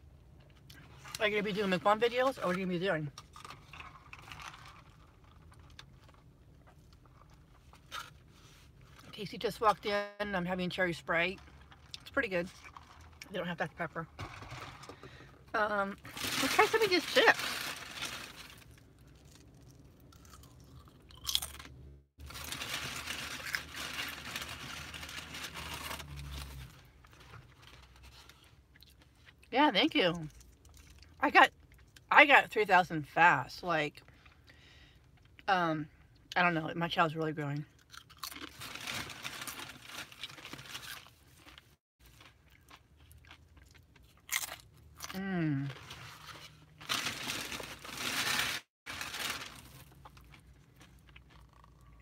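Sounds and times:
chips crunching while chewed: 16.1s - 26.7s, 37.8s - 52.0s.

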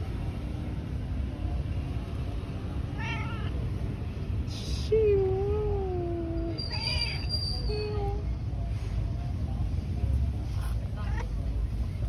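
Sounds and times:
cat meowing: 2.9s - 3.6s, 6.6s - 7.3s.

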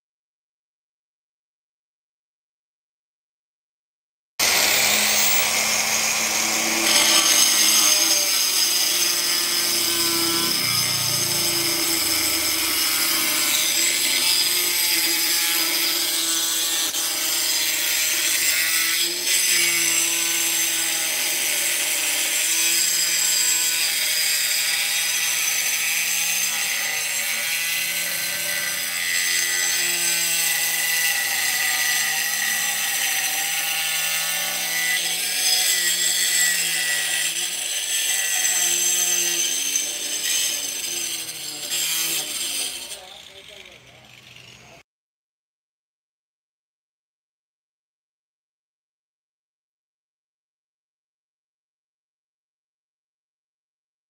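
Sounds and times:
angle grinder cutting tile: 4.4s - 44.9s.

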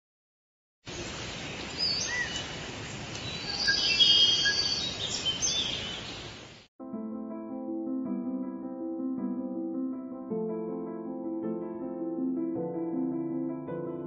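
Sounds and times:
birds chirping and whistling: 0.9s - 6.4s.

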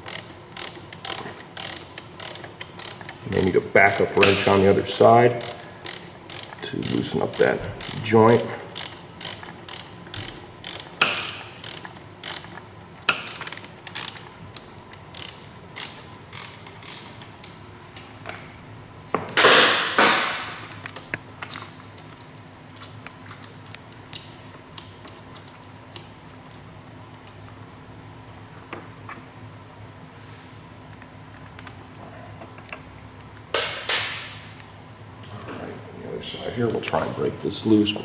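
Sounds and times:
hand ratchet clicking: 0.0s - 17.6s.

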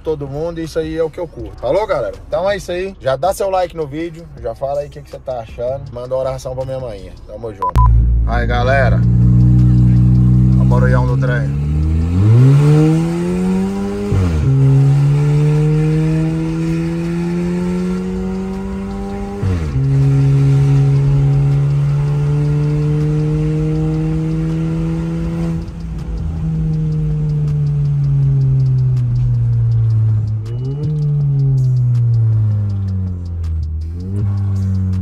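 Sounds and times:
car engine accelerating: 7.6s - 35.0s.

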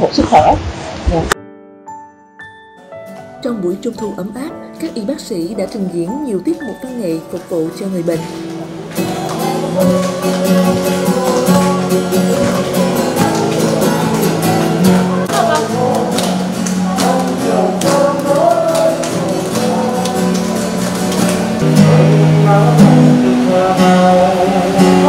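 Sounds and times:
acoustic guitar strumming: 2.5s - 25.0s
hands clapping: 8.4s - 21.9s
group singing: 9.0s - 25.0s.

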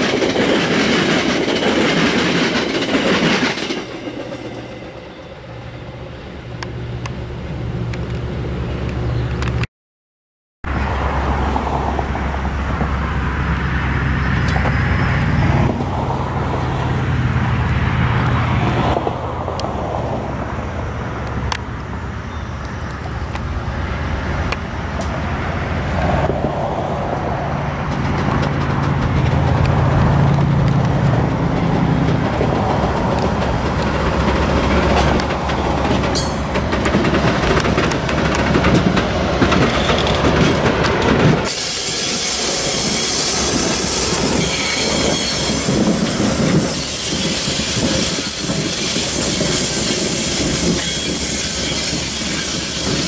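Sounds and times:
high train squeal: 0.0s - 7.0s, 14.1s - 16.0s, 22.2s - 23.3s, 32.5s - 53.0s
train passing rumble: 0.0s - 9.6s, 10.7s - 53.0s.

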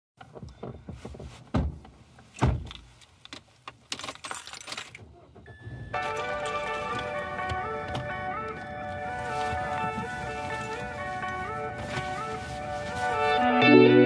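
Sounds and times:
dull thumps: 0.2s - 2.9s
car keys jingling: 2.6s - 13.2s
music: 5.7s - 14.0s.

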